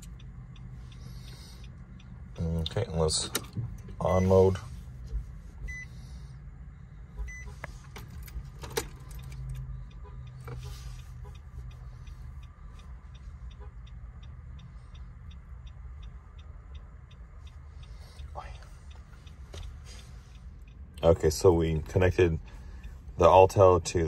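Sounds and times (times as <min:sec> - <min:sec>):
hazard light flasher ticking: 0:00.0 - 0:04.3, 0:09.1 - 0:24.0
low steady hum: 0:00.0 - 0:24.0
short beep: 0:05.7 - 0:06.0, 0:07.2 - 0:07.5.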